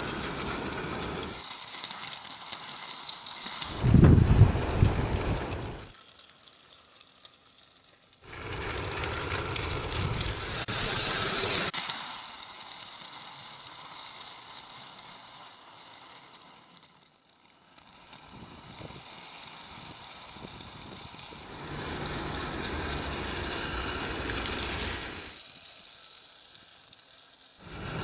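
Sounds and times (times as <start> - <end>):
model train wheels on rail: 0.0 - 28.0
low rumble: 3.7 - 5.9.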